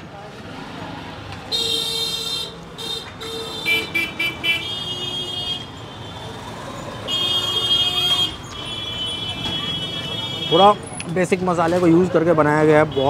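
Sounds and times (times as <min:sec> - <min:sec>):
vehicle horns honking: 0:01.5 - 0:06.3, 0:07.0 - 0:10.9, 0:12.8 - 0:13.0.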